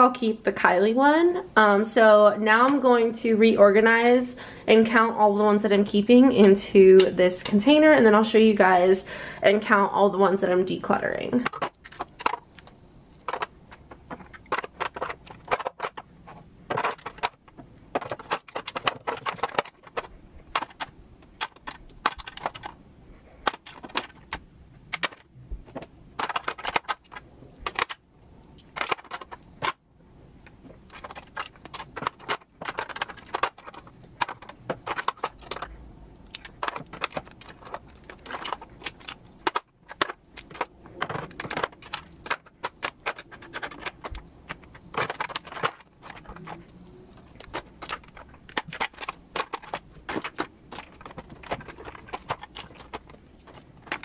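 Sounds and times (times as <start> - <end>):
makeup containers clicking and knocking: 11.4 - 22.8, 23.4 - 29.8, 30.7 - 54.0.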